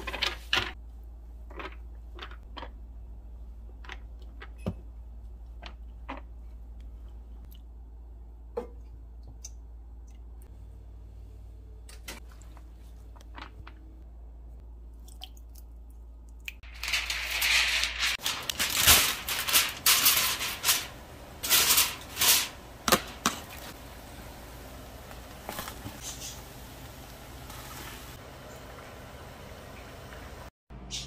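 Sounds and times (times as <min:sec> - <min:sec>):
aluminium foil crinkling: 0:16.6 - 0:23.8.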